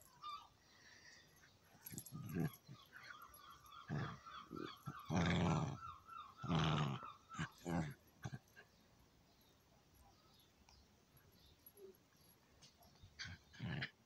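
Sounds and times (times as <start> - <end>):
dogs play growling: 1.8 - 8.8, 11.7 - 14.0.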